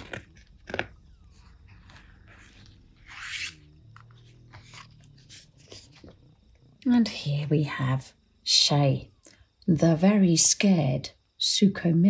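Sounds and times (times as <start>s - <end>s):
paper page rustling: 0.0s - 6.2s.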